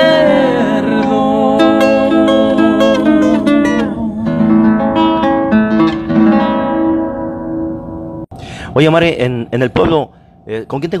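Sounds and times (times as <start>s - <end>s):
acoustic guitar strumming and plucking: 0.0s - 8.3s.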